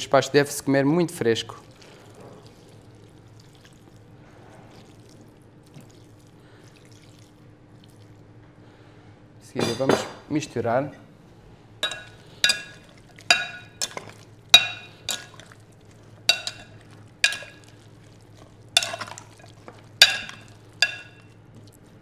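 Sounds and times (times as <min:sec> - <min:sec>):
metal spoon clinking on bowl: 0:11.8 - 0:15.4, 0:16.3 - 0:17.7, 0:18.8 - 0:21.4.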